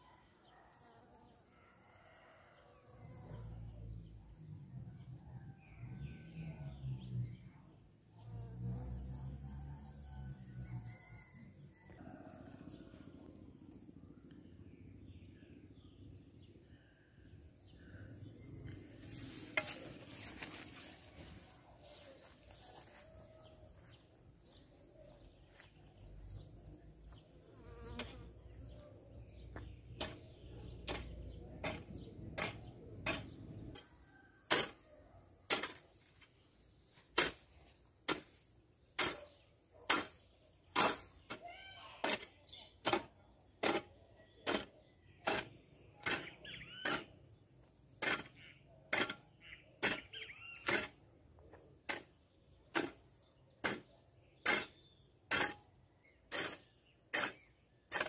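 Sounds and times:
hoe chopping into dry soil: 0:37.1 - 0:39.3, 0:39.9 - 0:41.3, 0:51.8 - 0:58.0.

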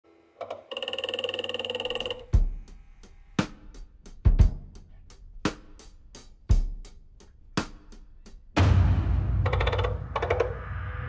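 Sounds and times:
bass drum and snare beat: 0:03.4 - 0:10.6.

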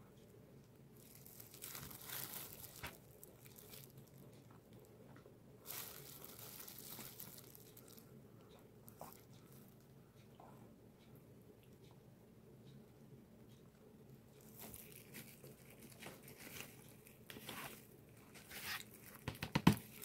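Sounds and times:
plastic gloves crinkling: 0:00.9 - 0:04.4, 0:05.6 - 0:08.1, 0:14.4 - 0:20.0.

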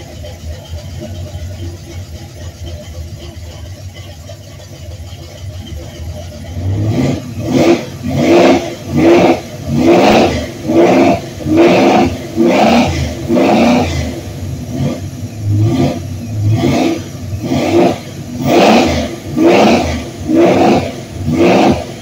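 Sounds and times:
engine revving in quick blips: 0:05.6 - 0:22.0.

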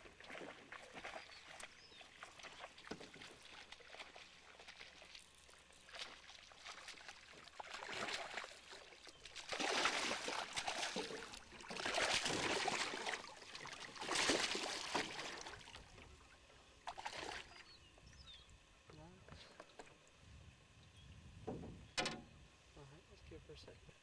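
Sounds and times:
fish splashing in water: 0:00.0 - 0:15.9, 0:16.9 - 0:17.6.

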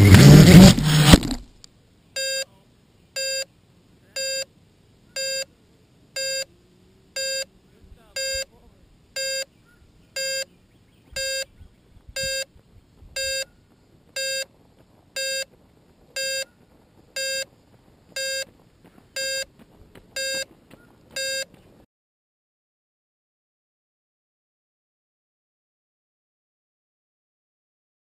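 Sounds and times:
electronic beeps: 0:02.2 - 0:02.6, 0:03.2 - 0:03.5, 0:04.1 - 0:04.5, 0:05.1 - 0:05.5, 0:06.2 - 0:06.5, 0:07.2 - 0:08.5, 0:09.2 - 0:09.5, 0:10.1 - 0:11.6, 0:12.2 - 0:12.5, 0:13.2 - 0:13.6, 0:14.2 - 0:14.5, 0:15.2 - 0:15.5, 0:16.2 - 0:16.6, 0:17.2 - 0:17.5, 0:18.2 - 0:18.5, 0:19.2 - 0:19.5, 0:20.2 - 0:20.5, 0:21.2 - 0:21.6.

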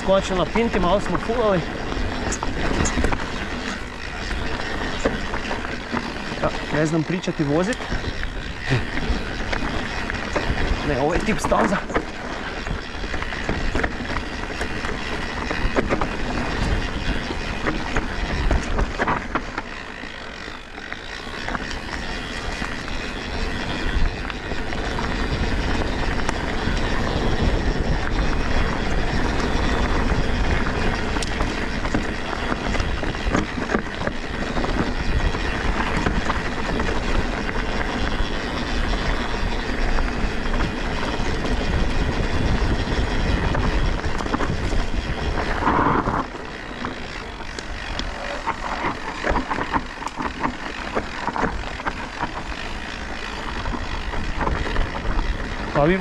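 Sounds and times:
wind rushing on microphone: 0:00.0 - 0:19.4, 0:21.4 - 0:56.0
bike knocks and rattles: 0:00.0 - 0:56.0
bike tyre noise on dirt: 0:00.0 - 0:56.0.

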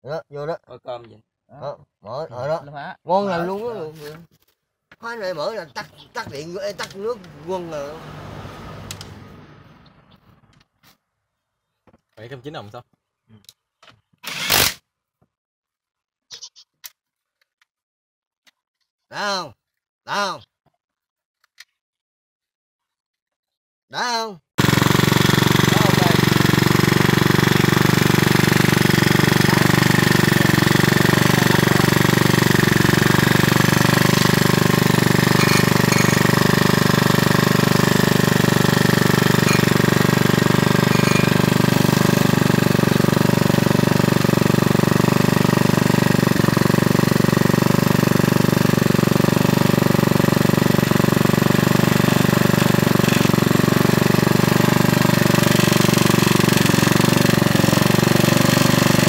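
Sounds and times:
generator engine running: 0:05.0 - 0:09.2, 0:24.6 - 0:59.0.

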